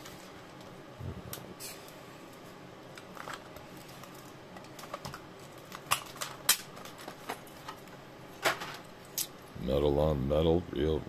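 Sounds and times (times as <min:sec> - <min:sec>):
plastic snapping: 0:04.8 - 0:07.0.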